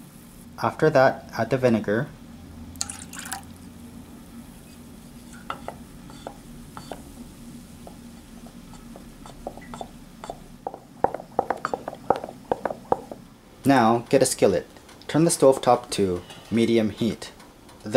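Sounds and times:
liquid being poured: 2.8s - 3.5s
spoon stirring liquid in bowl: 4.7s - 7.2s, 7.8s - 13.2s.

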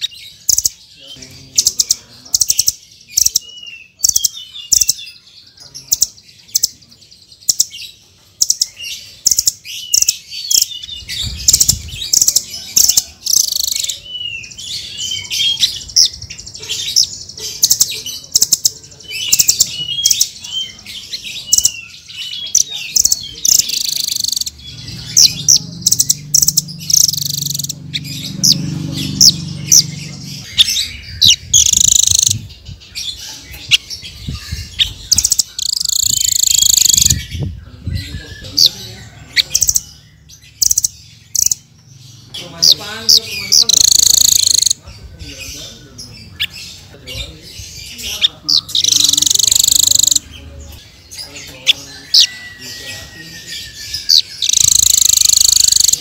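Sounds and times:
songbirds chirping and twittering: 0.0s - 56.0s.

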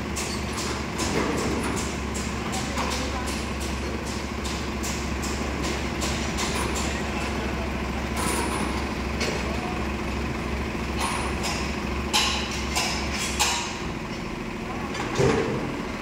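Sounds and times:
heavy diesel engine running: 0.0s - 16.0s
sharp metal clanks and knocks: 11.0s - 14.3s.

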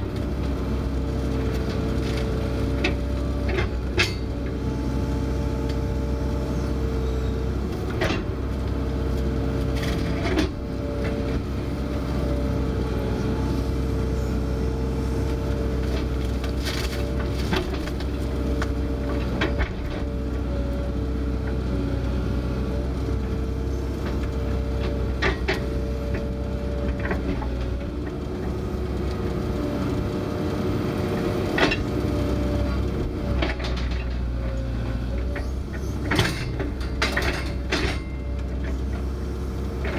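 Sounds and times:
excavator diesel rumble: 0.0s - 39.9s
excavator bucket clanks: 35.3s - 38.8s.

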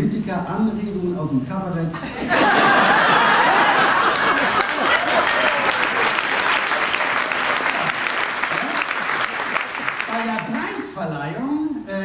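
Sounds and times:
audience laughing: 2.0s - 10.0s
audience applauding: 2.4s - 10.8s.

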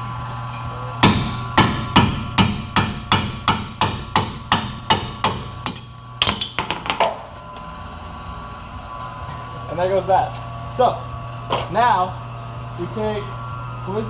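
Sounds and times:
sledgehammer striking steel: 1.0s - 7.4s
metallic ring: 5.6s - 7.6s.

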